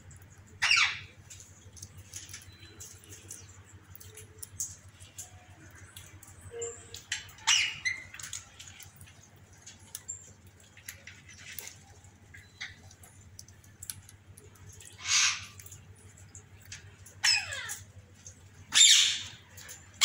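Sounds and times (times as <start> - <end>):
faint chirps and clicks: 0.0 - 20.0
parrots squawking: 0.6 - 1.2, 7.4 - 8.3, 14.8 - 15.7, 17.2 - 17.8, 18.7 - 19.4.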